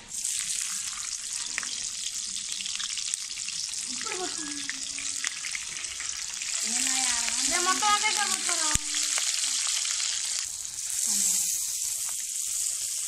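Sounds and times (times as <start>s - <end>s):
vegetables sizzling in hot oil: 0.0s - 13.0s
person speaking: 6.6s - 9.1s.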